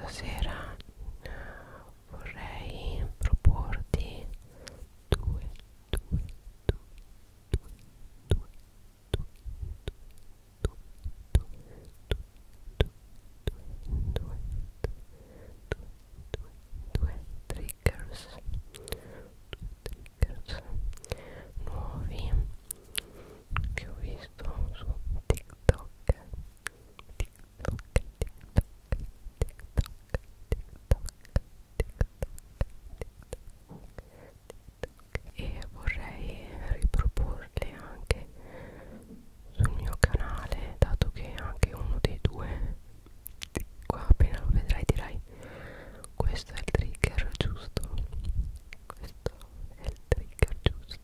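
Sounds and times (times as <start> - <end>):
crisp asmr clicks: 2.2 - 15.0, 15.7 - 38.3, 39.5 - 45.2, 46.0 - 51.0
sharp dry clicks and taps: 27.0 - 34.1.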